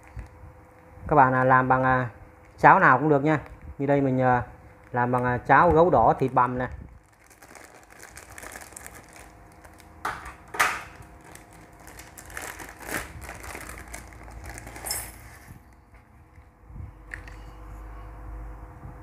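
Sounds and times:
plastic packet crinkling: 4.6 - 15.3.

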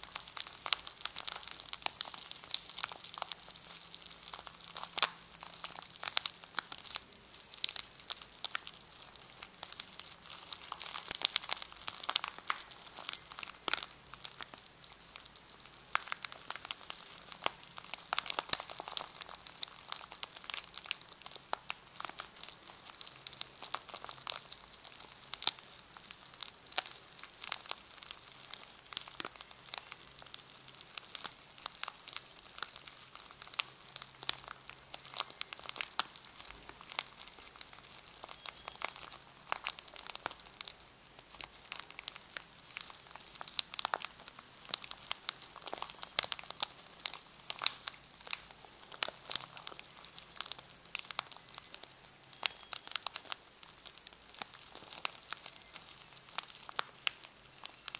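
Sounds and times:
plastic packaging crinkling: 0.0 - 57.9.

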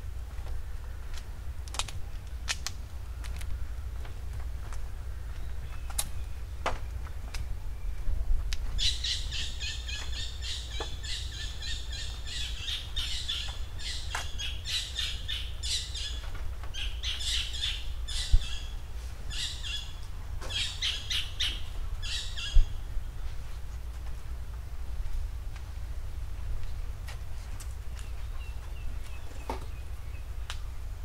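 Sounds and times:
steady low rumble: 0.0 - 31.0
birds chirping and trilling: 5.0 - 23.4, 27.8 - 30.9.

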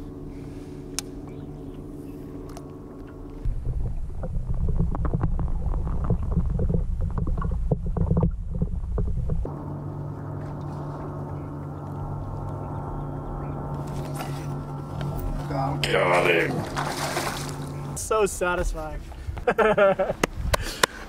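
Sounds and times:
muffled underwater rumble: 0.0 - 20.5
steady low hum: 0.0 - 21.0
underwater crackles and clicks: 2.4 - 15.4.

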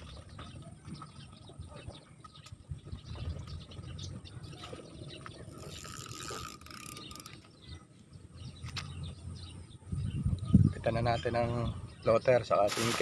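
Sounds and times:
fishing reel rustling: 5.4 - 7.6, 12.6 - 13.0.

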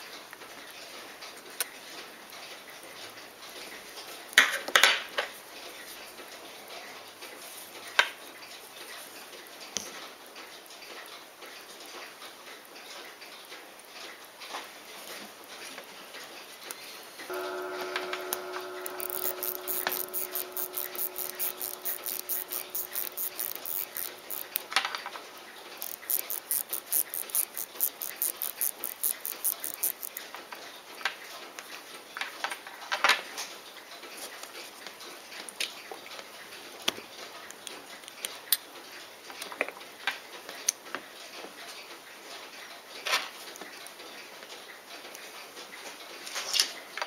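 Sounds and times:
watch ticking quickly: 17.3 - 24.8, 25.8 - 30.2
steady pitched hum: 17.3 - 30.1.

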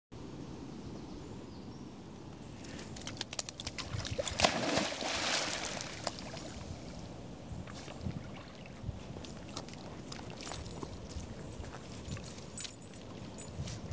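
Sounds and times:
dog splashing into water: 3.0 - 6.6
churning water: 3.7 - 6.8.

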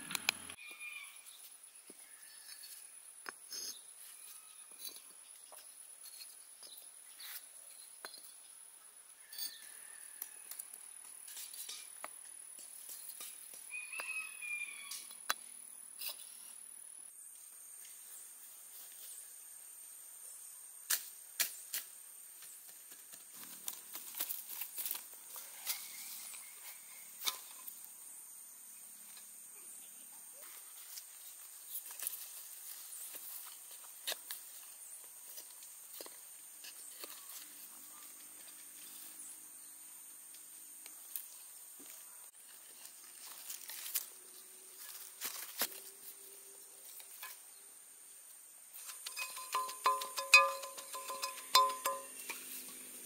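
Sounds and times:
high insect drone: 8.9 - 53.0.

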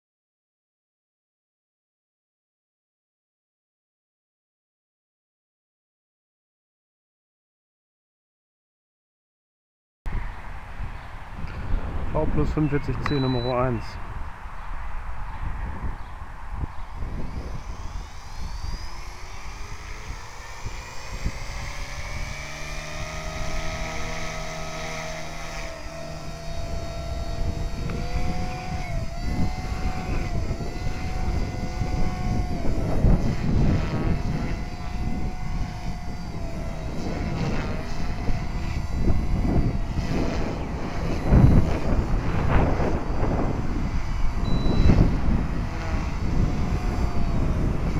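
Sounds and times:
gusty wind buffeting microphone: 10.1 - 47.9
rc helicopter rotor whine: 10.9 - 47.9.

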